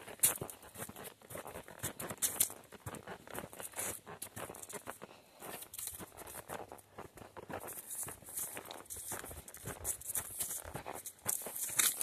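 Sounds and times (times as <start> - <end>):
footsteps on dirt trail: 0.0 - 12.0
leaves crunching and rustling: 7.8 - 12.0.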